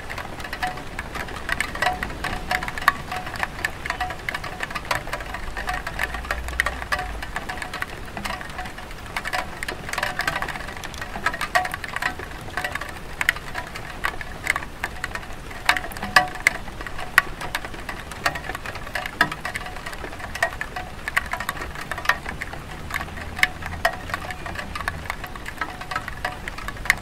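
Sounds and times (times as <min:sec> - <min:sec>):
rain on tile roof: 0:00.0 - 0:27.0.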